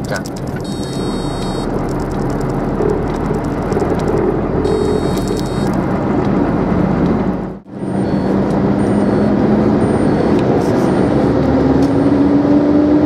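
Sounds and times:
road noise: 0:00.0 - 0:13.0
truck diesel engine droning: 0:04.2 - 0:13.0.

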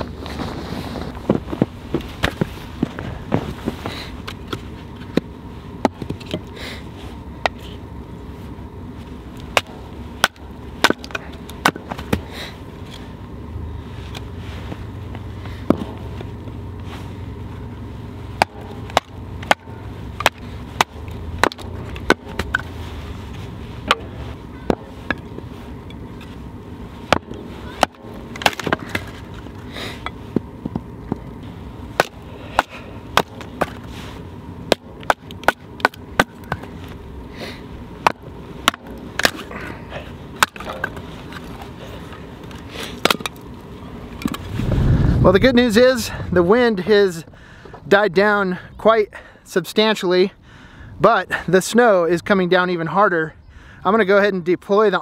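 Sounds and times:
low steady rumble: 0:00.0 - 0:55.0
baton striking knife through wood: 0:09.5 - 0:12.4, 0:15.6 - 0:16.4, 0:18.1 - 0:25.3, 0:27.1 - 0:31.2, 0:31.9 - 0:33.9, 0:34.6 - 0:37.0, 0:38.0 - 0:39.5, 0:40.3 - 0:41.6.

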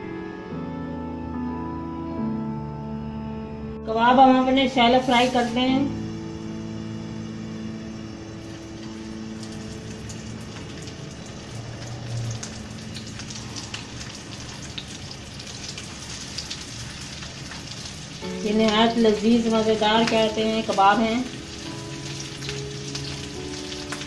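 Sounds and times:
background music: 0:00.0 - 0:24.0
meat sizzling in hot oil: 0:05.0 - 0:24.0.

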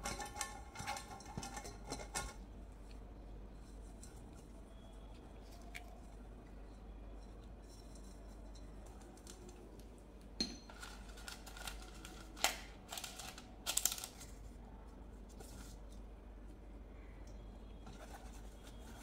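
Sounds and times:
baking paper crackling: 0:10.7 - 0:14.6.

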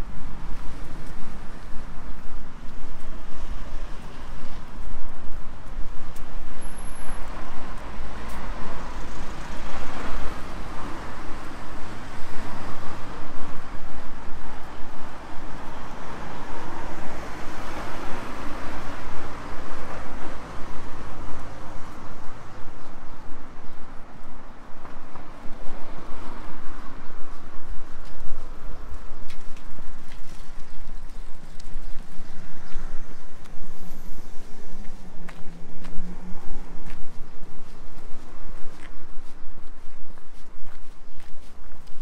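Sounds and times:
road traffic passing: 0:00.0 - 0:42.0.

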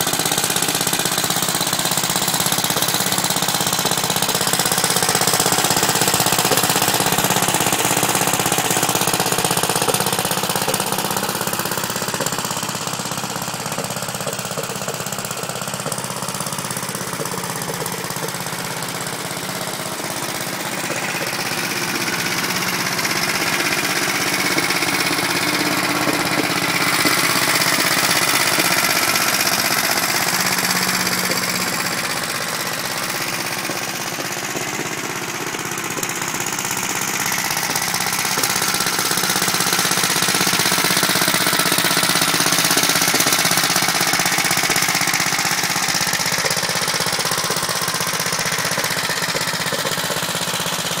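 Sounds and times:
single-cylinder engine running: 0:00.0 - 0:51.0.

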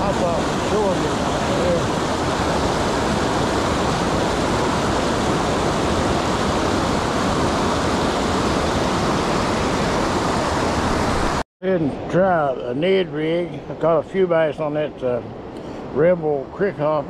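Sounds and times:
water rushing over rocks: 0:00.0 - 0:11.4.

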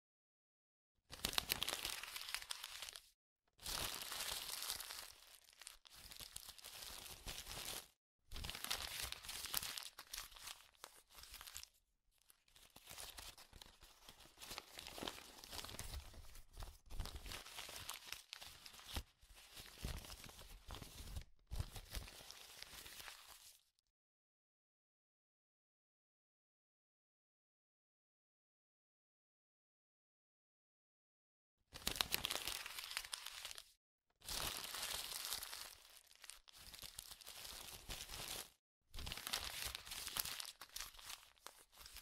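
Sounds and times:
packaging tearing and crinkling: 0:01.2 - 0:03.0, 0:03.6 - 0:07.8, 0:31.8 - 0:33.7, 0:34.3 - 0:42.0.

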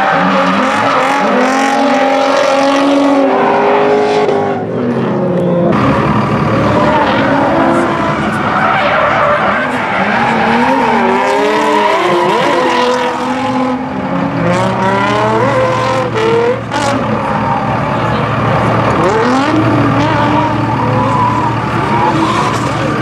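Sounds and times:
car engines revving: 0:00.0 - 0:23.0.

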